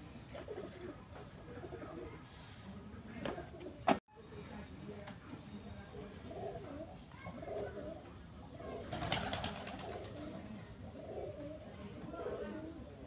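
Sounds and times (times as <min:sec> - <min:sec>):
pigeons cooing: 0:00.3 - 0:02.4, 0:06.0 - 0:13.0.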